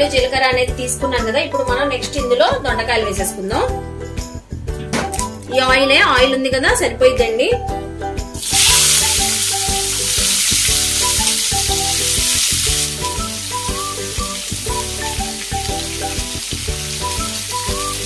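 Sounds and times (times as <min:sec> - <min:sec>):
vegetables sizzling in hot oil: 0:08.4 - 0:18.0.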